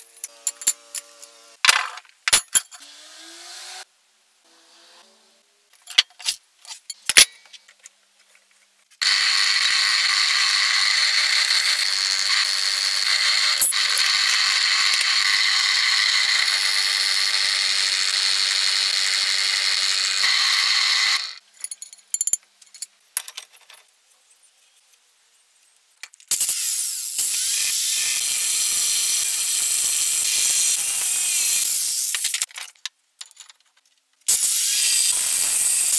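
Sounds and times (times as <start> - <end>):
electric drill boring through steel: 9.0 - 21.4, 26.3 - 32.3, 34.3 - 35.9.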